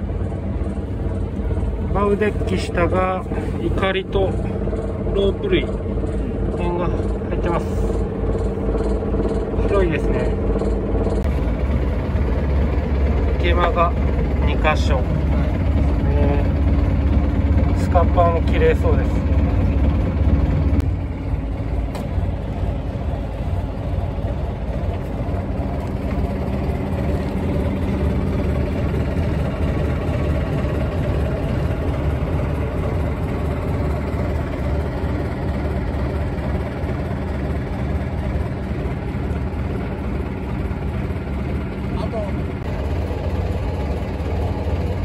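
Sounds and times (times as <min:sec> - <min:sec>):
boat engine idling: 0:00.0 - 0:45.0.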